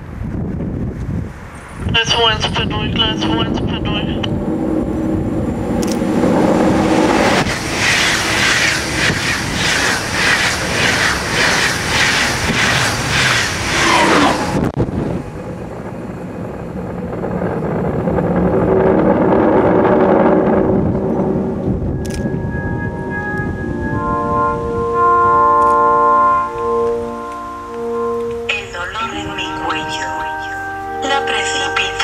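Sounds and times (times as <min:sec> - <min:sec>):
train passing at speed: 0:00.0 - 0:32.0
rhythmic wheel clatter: 0:07.4 - 0:13.8.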